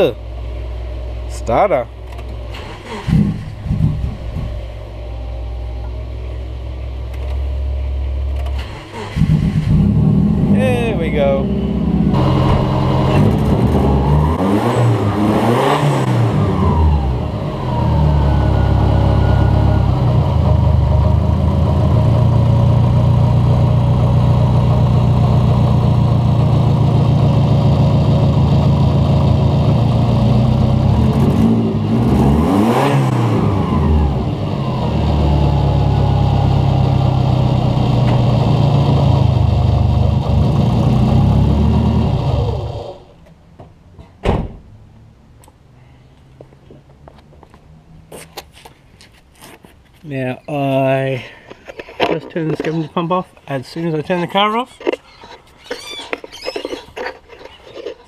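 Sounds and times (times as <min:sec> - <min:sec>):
car engine idling: 0:00.2 - 0:31.2
engine throttle blips: 0:02.1 - 0:43.0.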